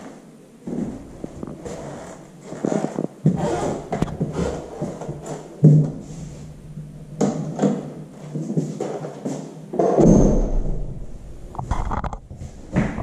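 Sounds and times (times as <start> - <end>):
footsteps walking through rooms: 0.0 - 13.0
loud rumbling thump: 10.0 - 11.6.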